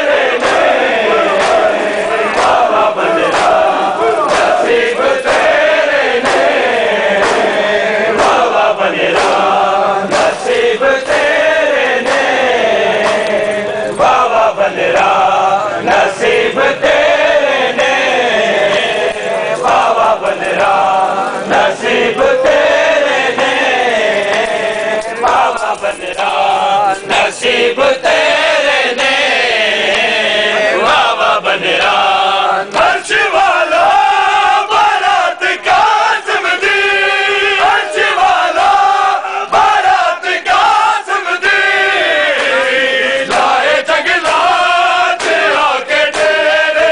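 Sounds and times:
men chanting in unison: 0.0s - 46.9s
sharp slaps: 0.1s - 11.4s, 12.0s - 14.2s, 17.9s - 27.3s, 42.2s - 46.6s.

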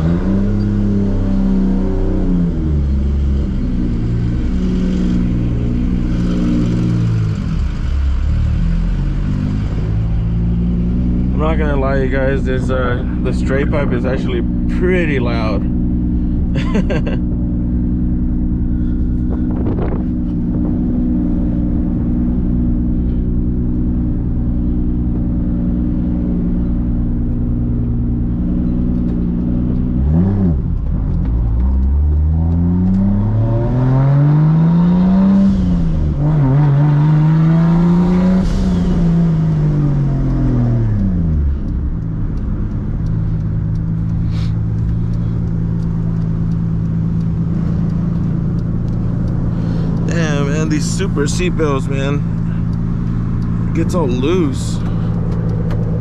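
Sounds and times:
car exhaust revving: 0.0s - 56.0s.

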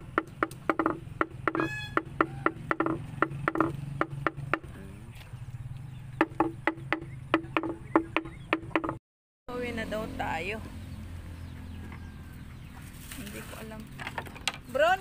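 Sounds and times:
sharp knocking: 0.0s - 4.7s, 6.2s - 9.0s.

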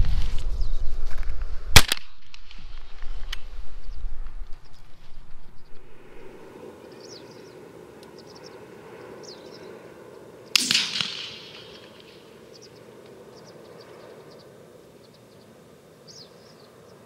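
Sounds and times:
open field background noise: 0.0s - 17.0s
shotgun shot: 1.8s - 2.6s, 10.6s - 12.4s
faint bird chirps: 6.8s - 9.8s, 11.5s - 17.0s.

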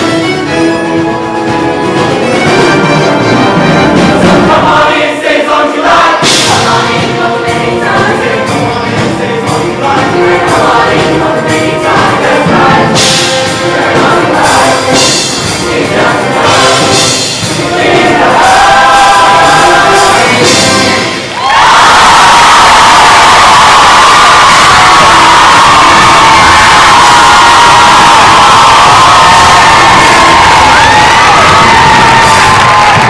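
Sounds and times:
instrumental accompaniment: 0.0s - 22.0s
choir singing in harmony: 2.9s - 33.0s.

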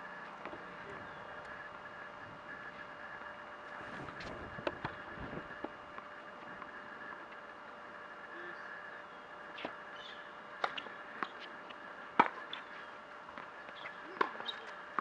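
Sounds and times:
tennis ball bouncing: 12.2s - 12.6s, 13.4s - 15.0s.

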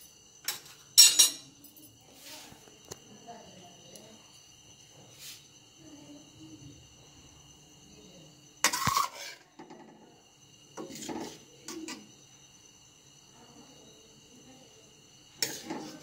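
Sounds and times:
spoon scraping and tapping: 8.7s - 9.4s.

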